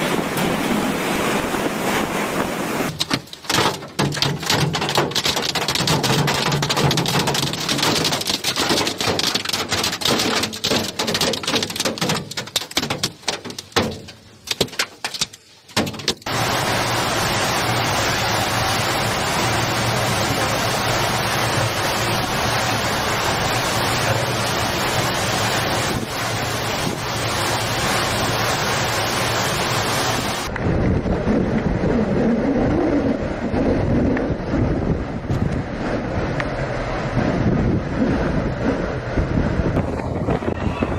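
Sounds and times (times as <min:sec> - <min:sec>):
heavy rain: 0:00.0 - 0:31.1, 0:33.2 - 0:40.9
rain on a vehicle: 0:02.8 - 0:30.6, 0:39.0 - 0:40.9
wind buffeting microphone: 0:30.1 - 0:40.9.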